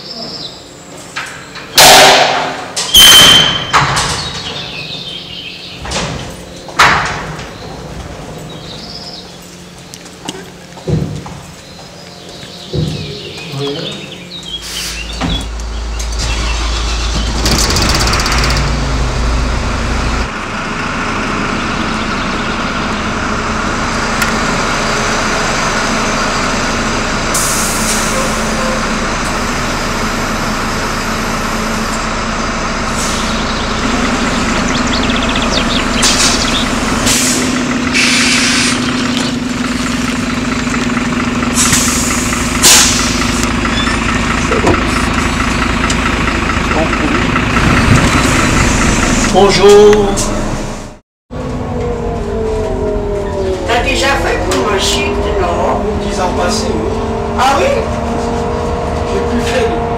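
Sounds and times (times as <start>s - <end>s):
bus engine humming: 0.0s - 59.9s
compressed air hissing: 14.6s - 15.2s, 27.3s - 28.2s, 32.9s - 33.4s, 36.0s - 39.0s, 41.6s - 43.4s.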